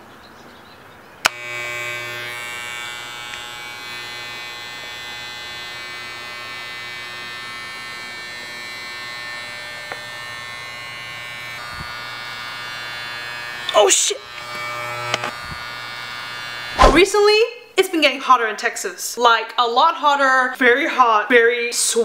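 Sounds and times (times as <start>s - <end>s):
hair clipper switch click: 1.2s - 4.3s, 9.8s - 10.2s, 14.4s - 15.4s
electric hair clipper buzzing: 1.2s - 17.1s.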